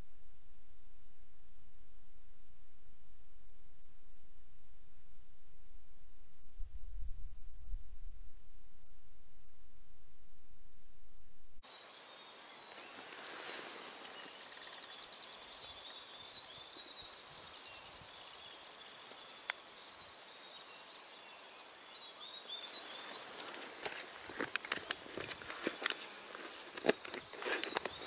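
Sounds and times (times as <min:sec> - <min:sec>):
rapidly pulsing wildlife trill: 0:11.6 - 0:28.0
clicks and rustling: 0:23.2 - 0:28.0.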